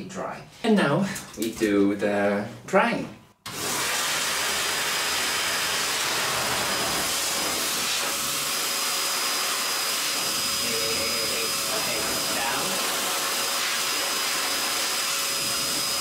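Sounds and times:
pet dryer blowing air: 3.5 - 16.0.

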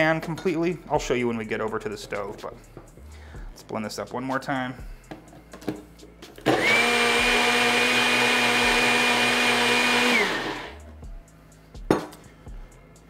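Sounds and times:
blender motor whine: 6.4 - 10.8.

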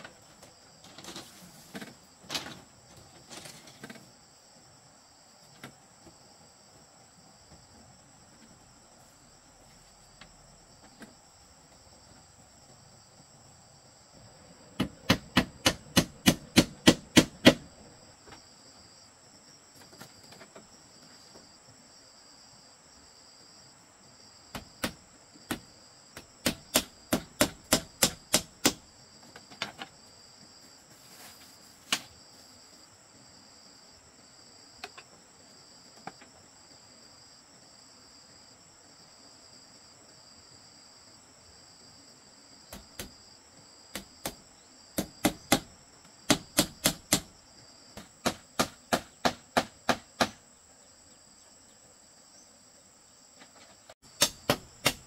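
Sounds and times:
hammer blows on bamboo: 14.8 - 17.7, 24.5 - 28.9, 45.0 - 45.7, 46.3 - 47.4, 48.0 - 50.4, 54.1 - 55.0.

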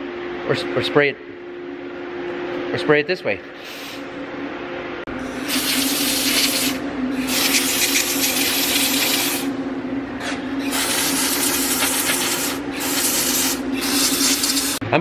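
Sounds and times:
steady low hum: 0.0 - 15.0
aerosol can spraying: 5.4 - 9.5, 10.7 - 14.8.

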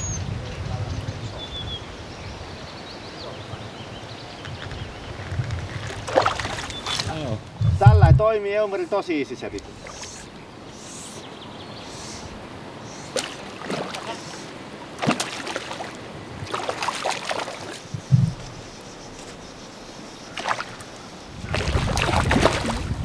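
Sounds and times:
background hiss: 0.0 - 23.0
fish splashing: 5.9 - 7.1, 13.0 - 18.4, 20.3 - 23.0
low thump: 18.0 - 18.5.

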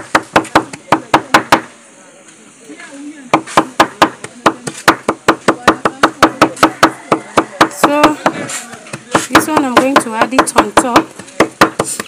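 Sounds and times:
knife chopping garlic: 3.4 - 12.0.

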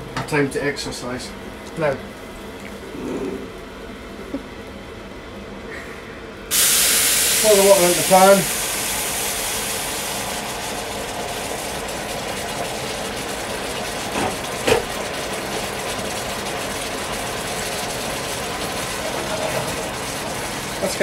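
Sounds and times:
water boiling in frying pan: 6.5 - 21.0.

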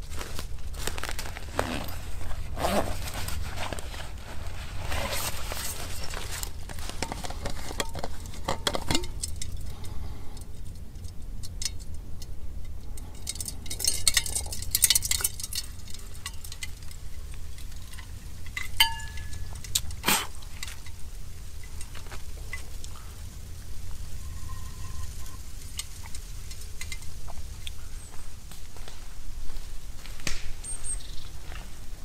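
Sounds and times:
metal cookware clinking: 17.8 - 20.0
short metallic ring: 18.7 - 19.5.

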